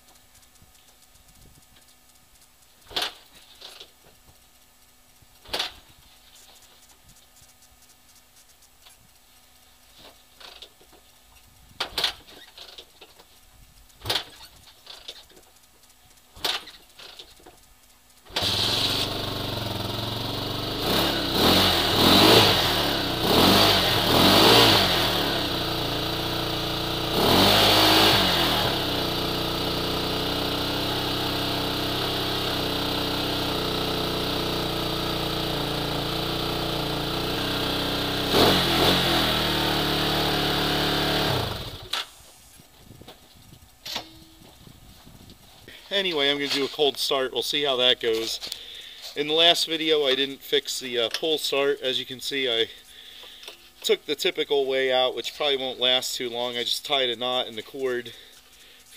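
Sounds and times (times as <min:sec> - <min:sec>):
motorcycle kick-start kicks: 0:00.0 - 0:47.1
motorcycle engine revving and idling: 0:11.8 - 0:45.8.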